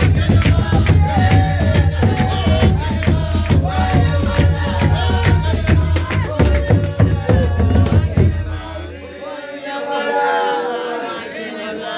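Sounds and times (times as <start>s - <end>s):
steady drum beat: 0.0s - 9.0s
group singing a chant: 0.0s - 11.9s.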